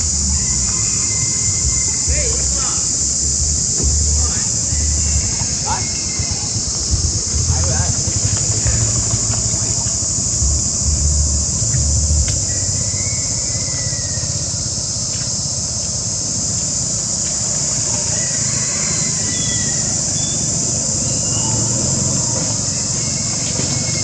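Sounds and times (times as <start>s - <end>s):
low rumbling: 0.0s - 15.0s
high-pitched insect chorus: 0.0s - 24.0s.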